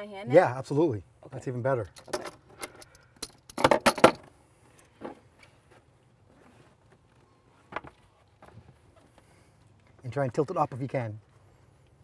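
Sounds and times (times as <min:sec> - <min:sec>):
sharp knocks and rattles: 0:01.9 - 0:04.3.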